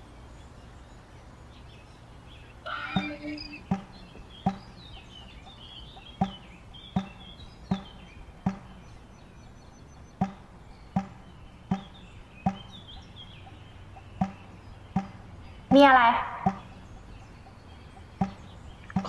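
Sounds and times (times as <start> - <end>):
faint bird chirping: 0.0 - 19.0
low steady hum: 0.0 - 19.0
soft thuds: 3.0 - 4.8, 6.2 - 8.8.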